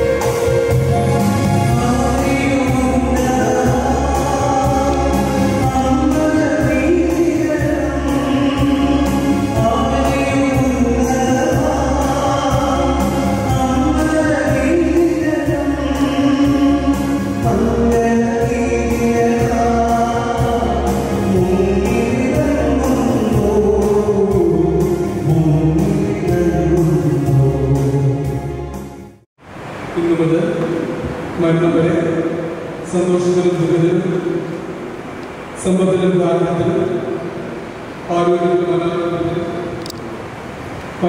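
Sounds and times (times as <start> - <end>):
instrumental accompaniment with beat: 0.0 - 29.2
choir singing gospel: 1.0 - 25.4.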